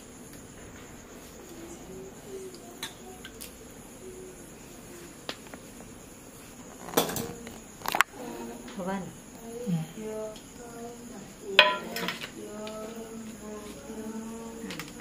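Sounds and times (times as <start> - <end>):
crickets chirping: 0.0 - 15.0
dishes clattering: 6.8 - 7.4, 11.6 - 12.4.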